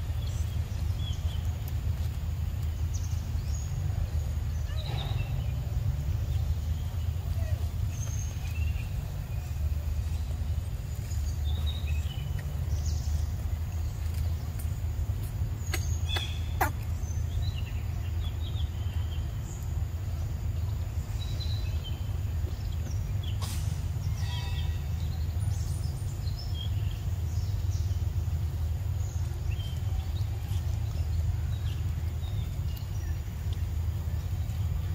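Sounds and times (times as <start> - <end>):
steady low rumble: 0.0 - 34.9
bird chirps: 2.8 - 19.7.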